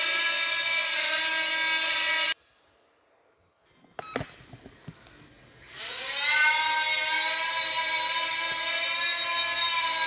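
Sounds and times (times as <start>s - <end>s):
drone motors whining: 0.0s - 2.4s, 5.6s - 10.0s.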